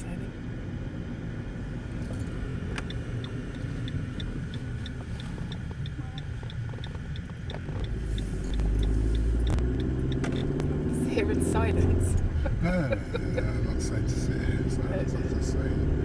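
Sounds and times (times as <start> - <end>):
car engine and road rumble: 0.0 - 16.0
faint light ticking: 2.1 - 10.7.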